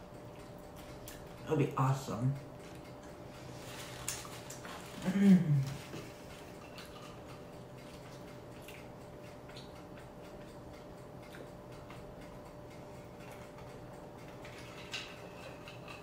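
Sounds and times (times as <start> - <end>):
low room hum: 0.0 - 16.0
person gulping: 4.9 - 6.0.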